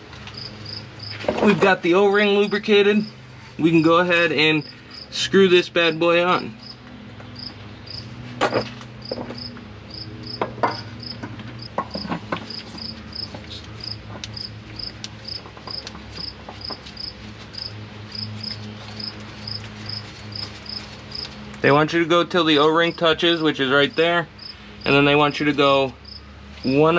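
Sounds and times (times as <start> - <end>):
cricket chirping: 0.3 - 1.2, 4.5 - 5.2, 7.4 - 8.1, 9.0 - 11.2, 12.5 - 21.3, 24.4 - 24.9, 26.0 - 26.8
knocks and clicks of oil filter: 10.4 - 13.4.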